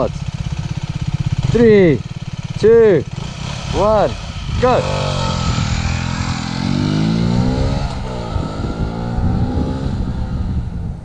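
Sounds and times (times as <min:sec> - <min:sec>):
motorcycle accelerating hard: 0:00.0 - 0:11.0.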